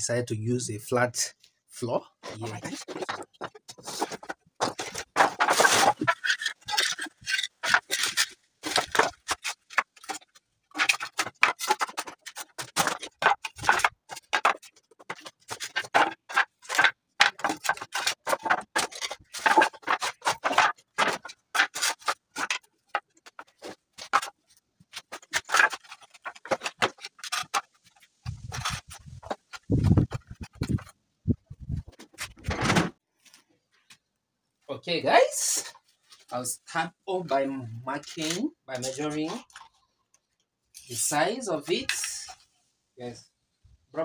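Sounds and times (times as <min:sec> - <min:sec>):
boards scraping on concrete: 0:02.3 - 0:30.9
wooden boards knocking and clattering: 0:02.4 - 0:30.9, 0:31.6 - 0:33.0.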